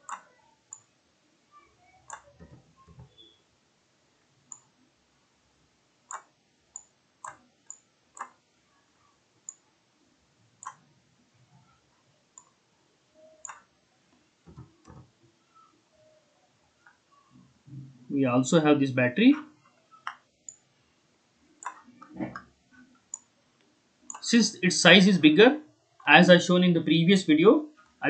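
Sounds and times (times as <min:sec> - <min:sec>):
computer mouse clicks: 0:00.0 - 0:00.9, 0:02.1 - 0:03.4, 0:04.5 - 0:04.7, 0:06.1 - 0:08.4, 0:09.4 - 0:09.6, 0:10.6 - 0:10.8, 0:13.2 - 0:13.7, 0:20.0 - 0:20.6, 0:21.6 - 0:23.3.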